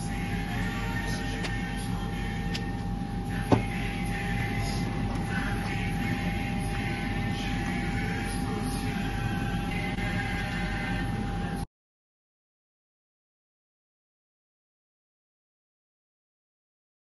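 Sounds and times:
machine hum with faint whine: 0.0 - 11.7.

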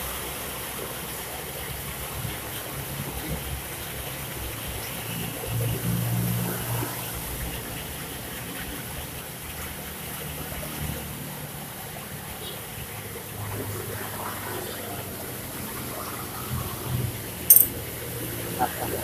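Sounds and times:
metal parts click: 17.5 - 17.8.

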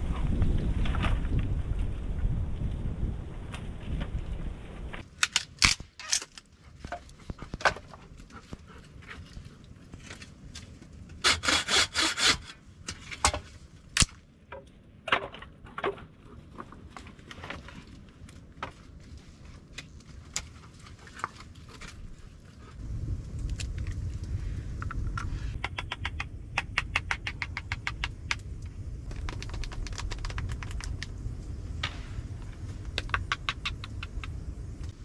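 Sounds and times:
low wind rumble: 0.0 - 35.0
hand saw on wood: 11.3 - 12.5.

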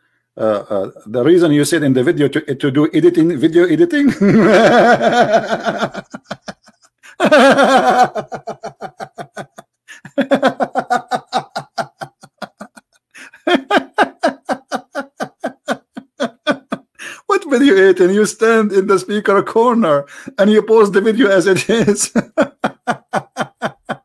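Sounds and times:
man laughing: 4.0 - 18.2, 21.2 - 24.0.

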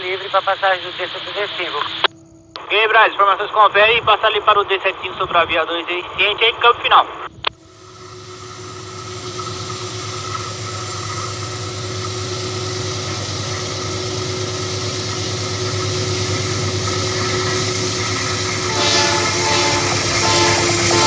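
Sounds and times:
locomotive engines humming: 0.0 - 21.0
locomotive horn: 18.3 - 21.0.

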